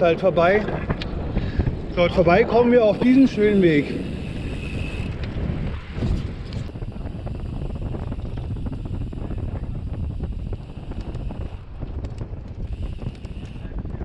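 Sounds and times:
bicycle tyres rumbling on path: 0:00.0 - 0:14.0
wind buffeting microphone: 0:00.0 - 0:14.0
small clicks and rattles: 0:10.8 - 0:13.7.

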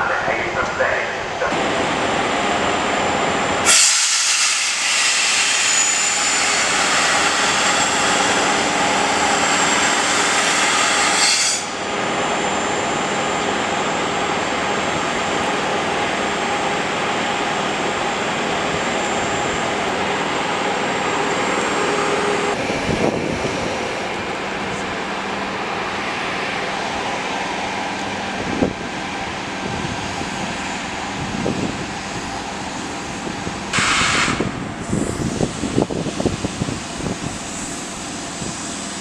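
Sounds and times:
loud hiss: 0:03.6 - 0:08.4, 0:33.7 - 0:39.0.

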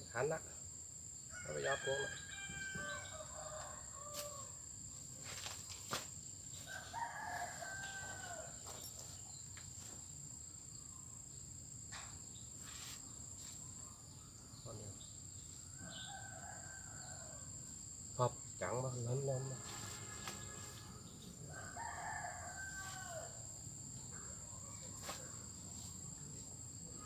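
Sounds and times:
roosters crowing: 0:01.3 - 0:04.8, 0:06.5 - 0:09.0, 0:15.6 - 0:18.0, 0:19.1 - 0:27.0
high-pitched insect drone: 0:12.4 - 0:22.0.

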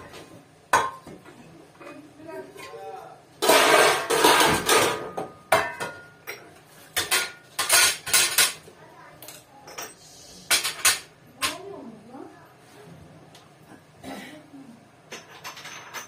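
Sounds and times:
metal pots and utensils clattering: 0:00.0 - 0:02.8, 0:03.4 - 0:08.7, 0:09.3 - 0:11.6, 0:15.1 - 0:16.0.

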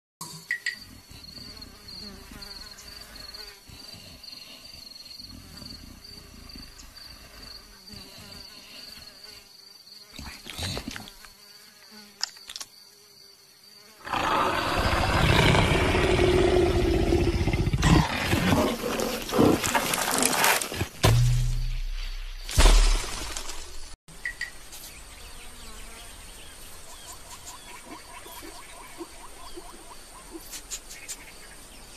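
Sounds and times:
insect buzz: 0:00.2 - 0:31.9
rough animal growling: 0:14.0 - 0:20.6.

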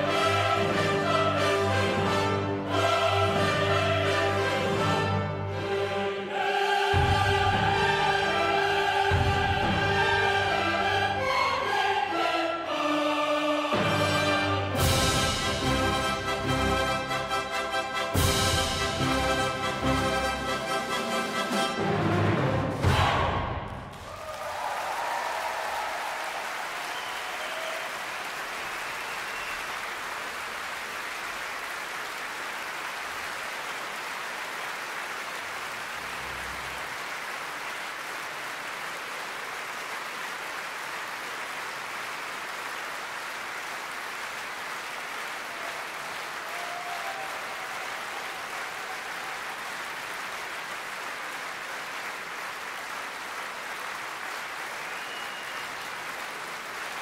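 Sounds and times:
audience applauding: 0:00.0 - 0:02.8, 0:23.7 - 0:57.0.

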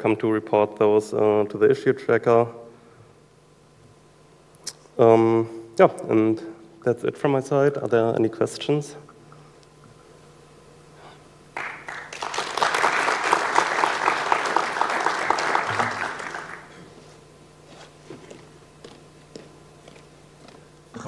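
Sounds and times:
audience applauding: 0:11.6 - 0:16.9.

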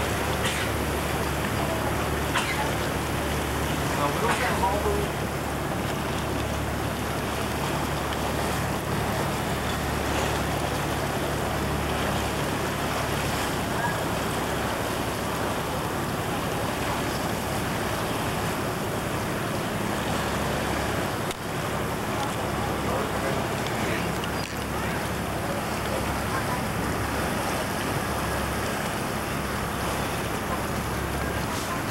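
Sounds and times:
boat engine hum: 0:00.0 - 0:31.9
water rushing along hull: 0:00.0 - 0:31.9.

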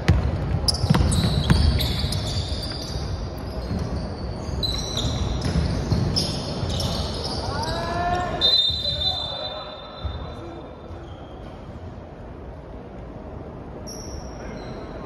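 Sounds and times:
basketball bouncing on wooden floor: 0:00.0 - 0:02.3, 0:03.6 - 0:04.0, 0:05.4 - 0:06.2
sneakers squeaking: 0:00.0 - 0:12.0, 0:13.7 - 0:15.0.

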